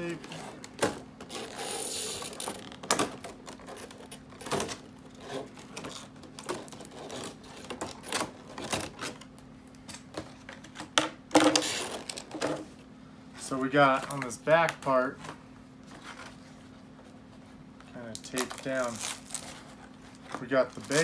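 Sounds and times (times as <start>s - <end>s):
plastic packaging crackling: 18.1s - 21.0s.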